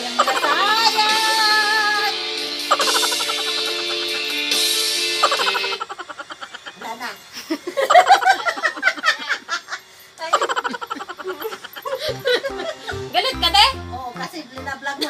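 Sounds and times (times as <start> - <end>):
women laughing and giggling: 0.0 - 1.0, 2.6 - 4.5, 5.2 - 13.6.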